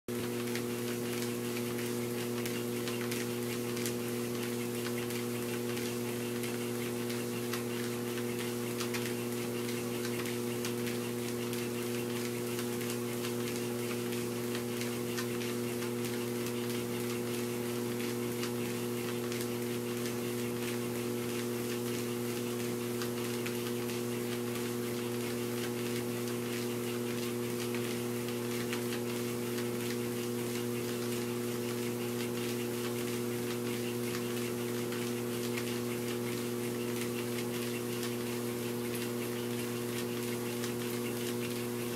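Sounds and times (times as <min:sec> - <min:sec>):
treadmill motor humming: 0:00.1 - 0:41.9.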